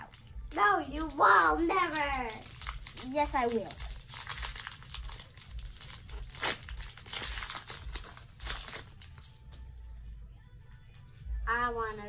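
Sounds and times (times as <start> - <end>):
foil wrapper crinkling: 0.0 - 9.6.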